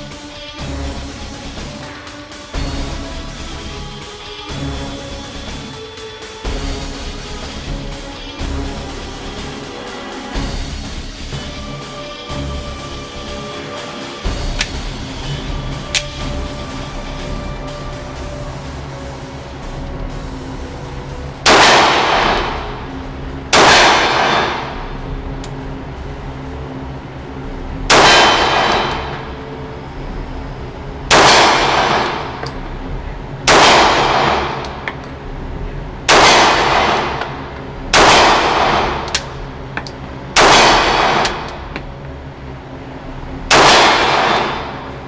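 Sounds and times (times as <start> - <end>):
pistol shots with echo: 21.5 - 22.7, 23.5 - 24.8, 27.9 - 29.3, 31.1 - 32.4, 33.5 - 34.9, 36.1 - 39.3, 40.4 - 41.6, 43.5 - 45.0.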